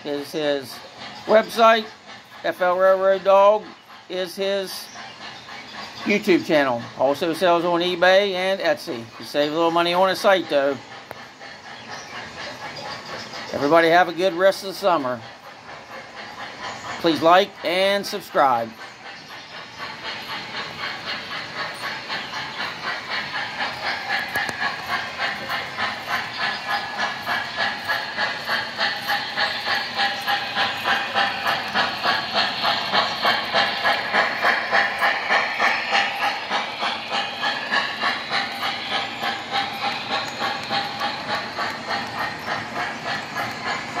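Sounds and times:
model steam locomotive chuffing: 0.0s - 44.0s.

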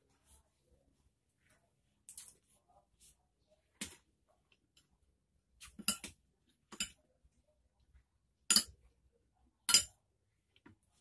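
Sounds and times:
spoon clinking against dishes: 5.8s - 6.1s, 6.7s - 7.0s, 8.5s - 8.8s, 9.7s - 10.0s.

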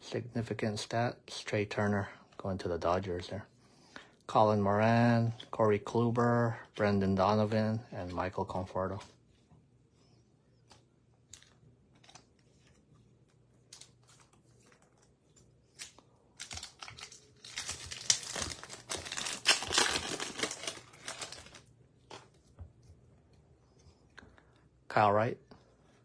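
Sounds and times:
foil pack tearing and crinkling: 15.7s - 21.7s.

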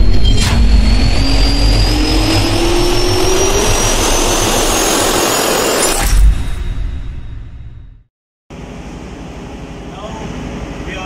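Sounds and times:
jet turbine spooling up: 0.0s - 6.1s.

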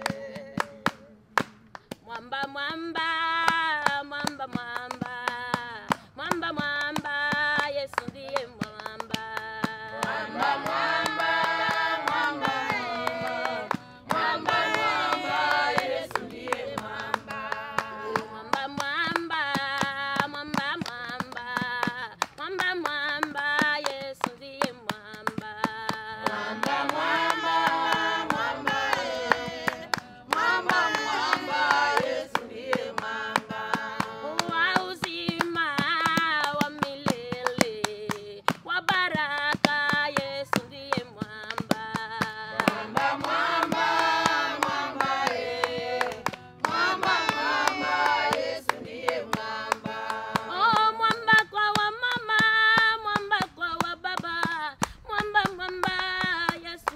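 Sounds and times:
group singing a hymn: 0.0s - 1.2s, 9.0s - 21.3s, 25.3s - 35.5s, 42.2s - 51.4s
hand-clapping in time: 0.0s - 56.9s.

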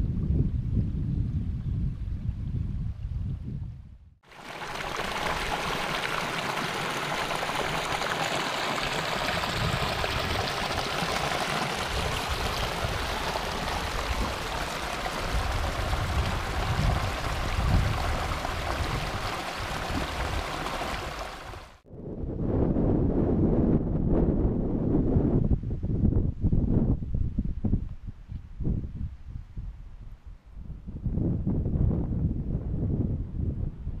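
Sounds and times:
stream rushing over rocks: 4.3s - 21.8s.

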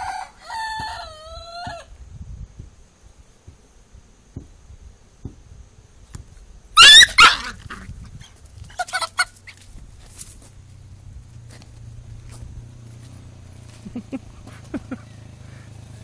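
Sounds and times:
shrill wavering cry: 6.8s - 7.8s
puppy yelping: 6.8s - 7.9s.

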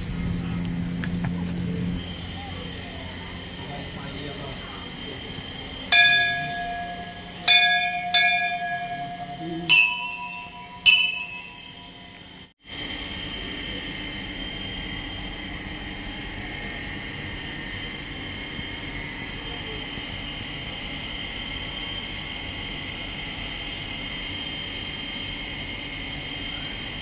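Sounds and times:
steady hum: 0.0s - 27.0s
temple bells ringing: 5.9s - 12.2s.

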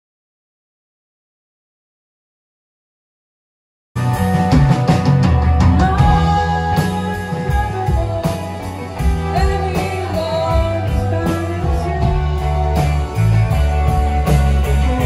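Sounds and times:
bass guitar: 4.0s - 15.0s
drum kit: 4.0s - 15.0s
electric guitars: 4.0s - 15.0s.

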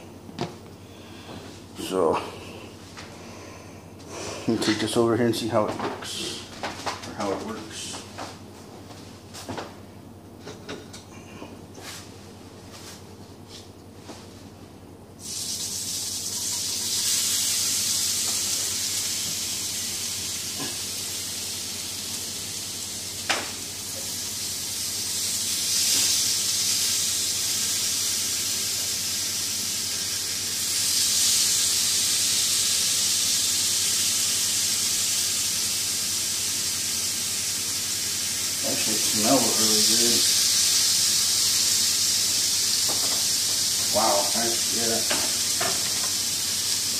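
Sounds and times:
patties sizzling in a frying pan: 15.2s - 46.9s.

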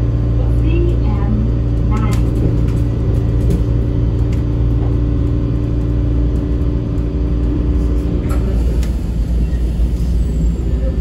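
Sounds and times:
monorail car running hum: 0.0s - 11.0s
click: 8.3s - 9.0s.

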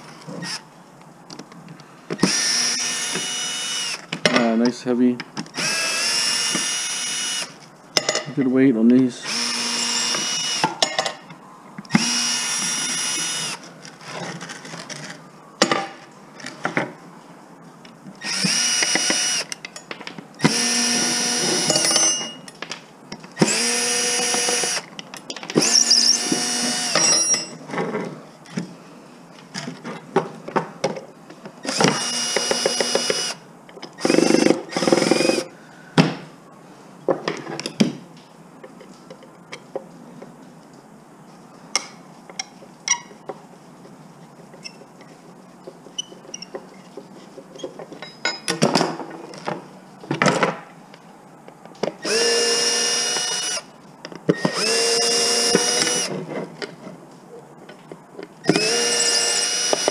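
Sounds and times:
power drill running: 2.2s - 4.1s, 5.6s - 7.6s, 9.2s - 10.6s, 11.9s - 13.6s, 18.2s - 19.5s, 20.4s - 21.8s, 23.4s - 24.9s, 25.6s - 27.2s, 31.6s - 33.4s, 34.0s - 35.5s, 52.0s - 53.7s, 54.4s - 56.1s, 58.5s - 59.9s.

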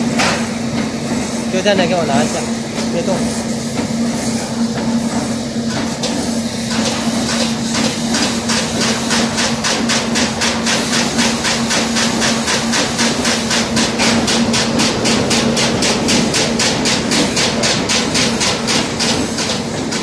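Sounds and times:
machine humming: 0.0s - 20.0s
fast even machine clacking: 5.7s - 20.0s.

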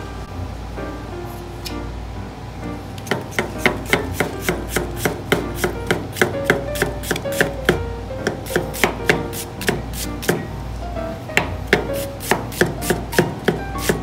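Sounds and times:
knife slicing onion on board: 3.0s - 10.5s, 11.4s - 14.0s.

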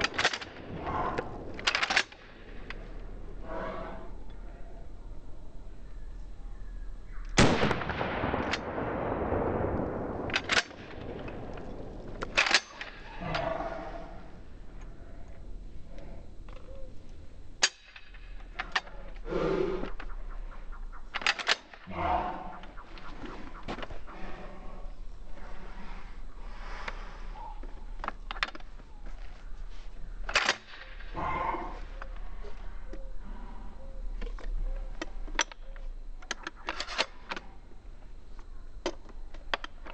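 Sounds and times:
shotgun metallic clicks: 0.0s - 3.1s, 7.2s - 8.8s, 9.7s - 13.6s, 20.9s - 23.1s, 30.2s - 31.1s, 34.2s - 37.5s
shotgun blast: 7.4s - 11.1s.

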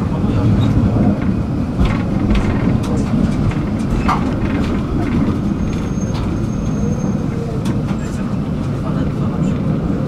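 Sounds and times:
tram rumbling on rails: 0.0s - 10.0s
wheels clicking over track: 0.5s - 9.6s.

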